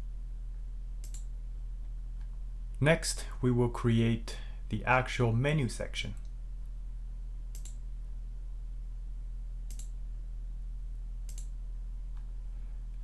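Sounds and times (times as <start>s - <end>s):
low electrical hum: 0.0s - 13.0s
computer mouse clicking: 1.0s - 1.3s, 7.5s - 7.8s, 9.7s - 10.0s, 11.3s - 11.6s.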